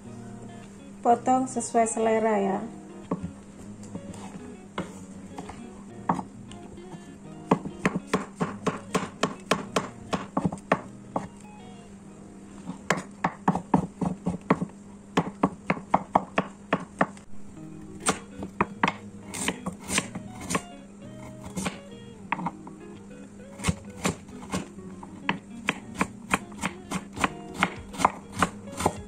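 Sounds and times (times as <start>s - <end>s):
cleaver chopping on wooden block: 7.5s - 11.3s, 25.3s - 29.0s.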